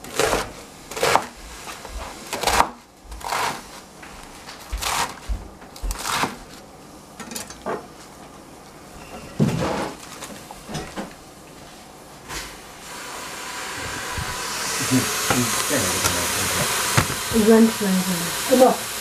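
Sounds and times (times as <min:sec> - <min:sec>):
knife chopping on plastic board: 0:00.0 - 0:01.4, 0:02.3 - 0:03.6, 0:04.7 - 0:06.4, 0:15.2 - 0:17.4.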